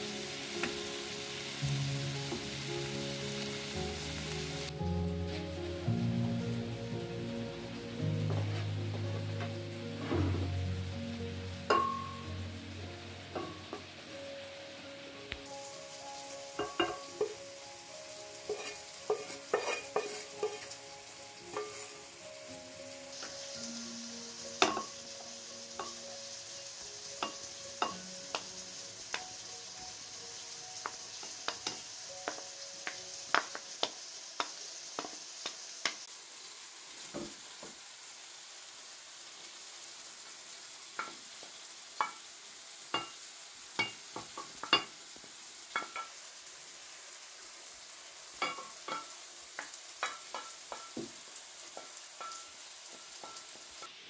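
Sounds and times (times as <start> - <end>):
faint steady hiss: 0.0 - 54.0
utensils clinking on ceramic bowl: 16.6 - 17.0, 18.5 - 20.6.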